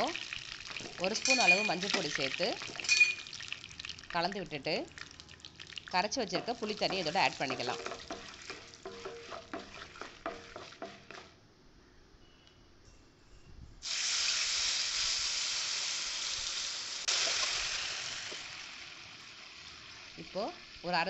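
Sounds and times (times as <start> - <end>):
seeds crackling in hot oil: 0.0 - 11.3, 13.8 - 21.0
liquid hissing in hot oil: 13.8 - 20.2.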